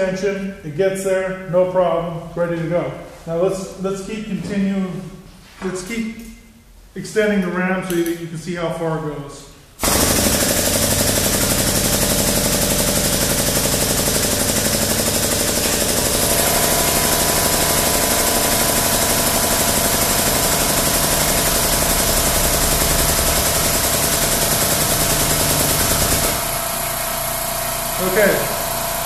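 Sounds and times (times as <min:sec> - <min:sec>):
air-driven pump chattering: 0:09.8 - 0:29.0.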